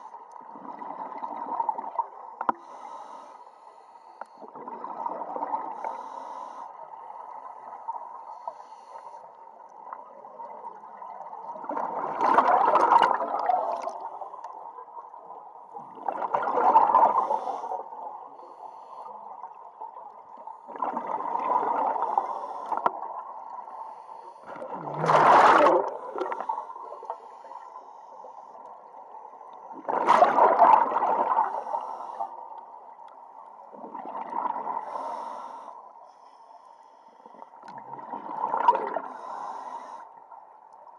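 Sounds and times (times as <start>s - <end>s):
underwater noise: 0.0s - 40.9s
exhaust bubbles bursting: 24.7s - 26.3s.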